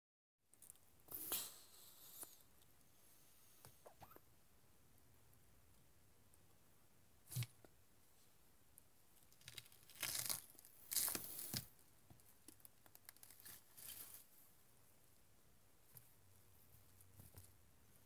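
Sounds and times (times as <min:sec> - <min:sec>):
raw vegetables tearing and crunching: 0:09.3 - 0:11.7, 0:12.5 - 0:14.2.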